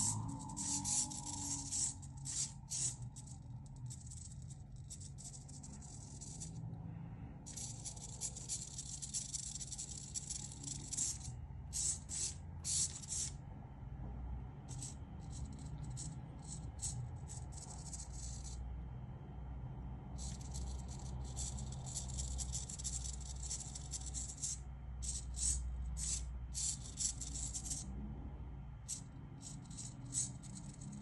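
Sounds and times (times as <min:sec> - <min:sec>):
steady low hum: 0:00.0 - 0:31.0
servos whirring: 0:08.5 - 0:13.4.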